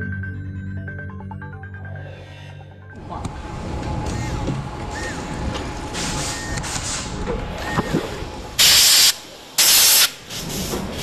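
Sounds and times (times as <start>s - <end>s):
air blow gun hissing blast: 8.6s - 11.0s.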